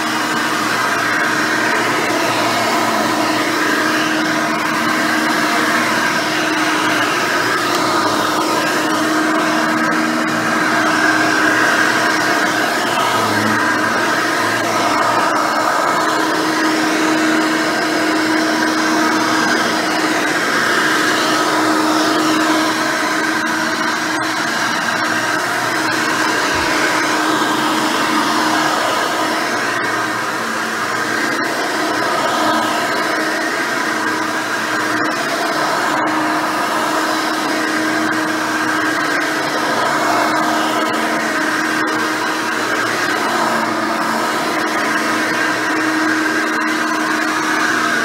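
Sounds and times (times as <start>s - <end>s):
vacuum cleaner running on carpet: 0.0s - 48.0s.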